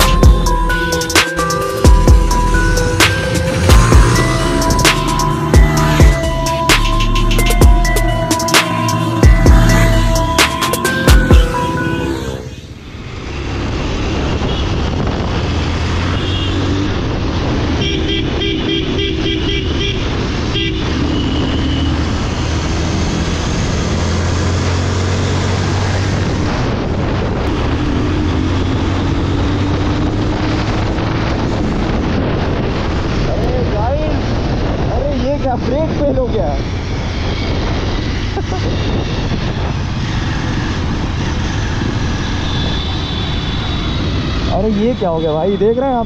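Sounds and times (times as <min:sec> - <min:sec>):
vehicle horn toots: 0:14.4 - 0:14.9, 0:16.1 - 0:16.7, 0:17.8 - 0:21.9, 0:42.4 - 0:44.2
wind rushing: 0:19.9 - 0:44.6.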